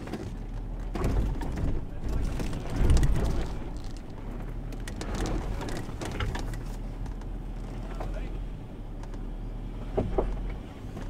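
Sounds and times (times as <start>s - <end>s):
stones crunching under tyres: 0.0s - 7.8s
low engine rumble: 0.0s - 11.0s.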